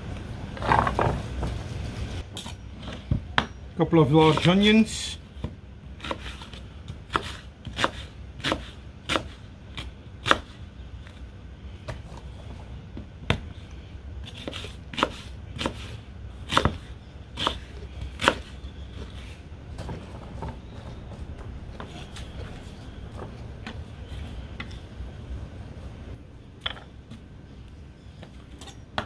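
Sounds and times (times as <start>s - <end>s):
knife chopping on wooden board: 5.4s - 10.6s, 16.5s - 19.2s.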